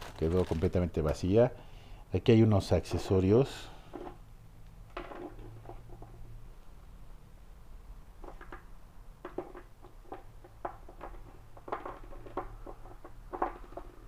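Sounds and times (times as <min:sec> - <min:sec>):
plastic toys tapping on stone: 0:08.2 - 0:14.0.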